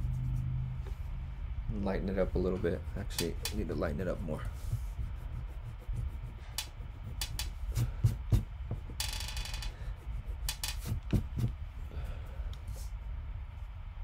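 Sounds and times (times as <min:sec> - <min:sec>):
eraser tapping on paper and table: 0:06.5 - 0:09.6, 0:10.4 - 0:11.6.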